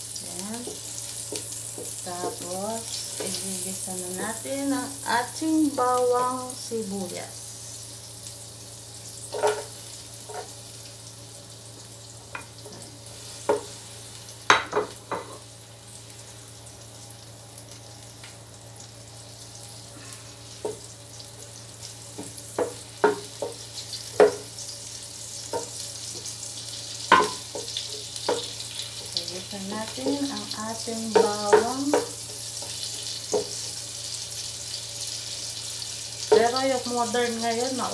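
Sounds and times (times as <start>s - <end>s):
garlic sizzling in butter: 0.0s - 37.9s
wooden spoon knocking and scraping pot: 27.1s - 28.5s, 31.1s - 32.2s.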